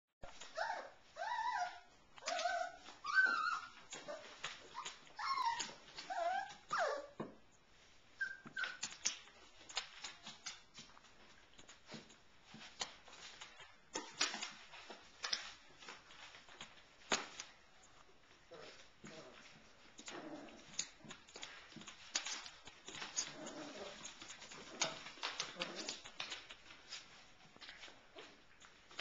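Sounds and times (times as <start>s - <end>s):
puppies whining: 0.3s - 7.2s, 8.2s - 9.1s
puppy yips: 0.5s - 7.2s, 8.2s - 9.2s
clicks and taps of scuffling: 8.4s - 18.1s.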